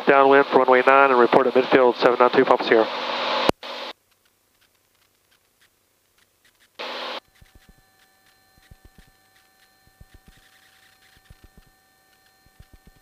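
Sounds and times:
faint electronic whine: 0.1s - 13.0s
radio static burst: 1.7s - 4.0s, 6.8s - 7.8s
faint radio clicks: 3.6s - 13.0s.

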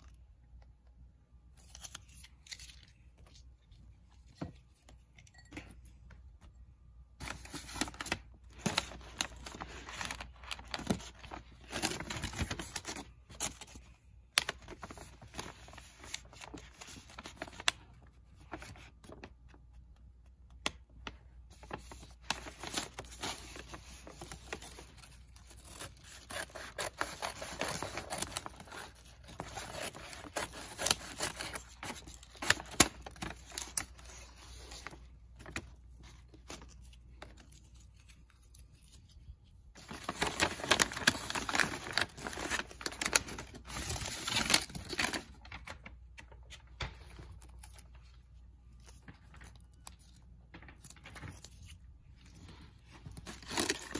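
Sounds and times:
paper bag rustling and crackling: 7.2s - 19.4s, 21.0s - 37.4s, 39.8s - 48.0s.

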